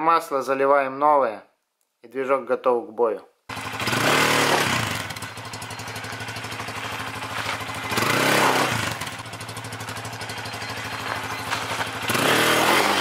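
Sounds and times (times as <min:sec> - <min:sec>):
motorcycle engine idling: 0:03.5 - 0:13.0.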